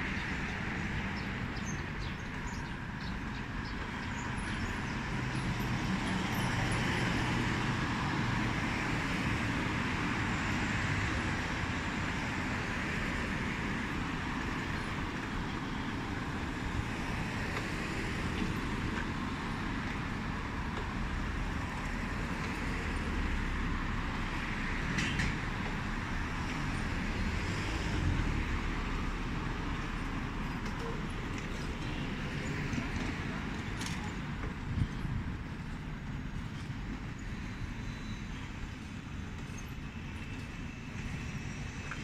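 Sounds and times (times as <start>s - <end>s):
hum of city traffic: 0.0s - 42.0s.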